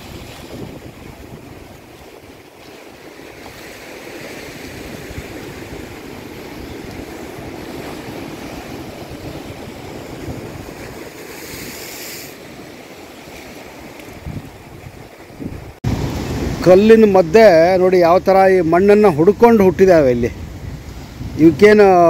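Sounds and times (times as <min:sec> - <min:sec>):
sea waves washing over rocks: 0:00.0 - 0:22.0
water hissing: 0:11.2 - 0:12.8.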